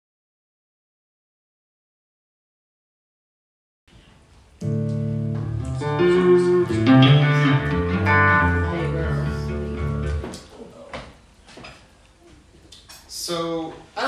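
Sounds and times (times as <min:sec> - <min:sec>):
electric guitar: 0:04.6 - 0:10.5.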